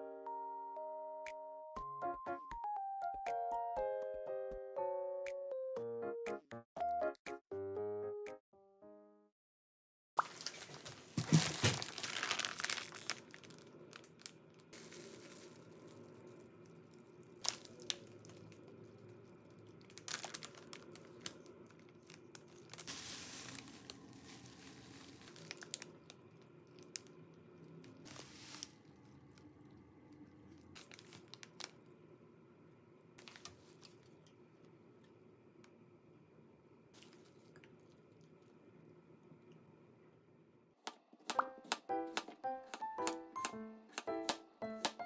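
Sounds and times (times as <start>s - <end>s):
plastic packaging crinkling: 10.2s - 29.0s, 30.6s - 31.9s, 33.2s - 34.1s.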